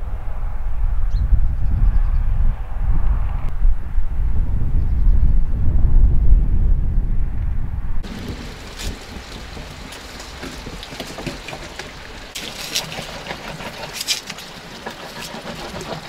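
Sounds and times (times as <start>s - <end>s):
knife scraping fish: 12.6s - 16.0s.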